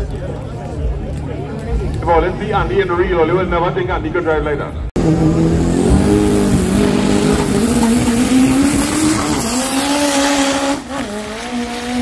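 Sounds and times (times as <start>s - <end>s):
racing car engine at high revs: 5.0s - 12.0s.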